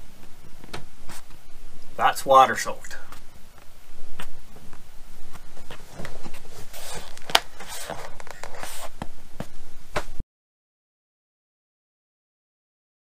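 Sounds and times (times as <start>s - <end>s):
close rustling handling noise: 4.2s - 9.0s.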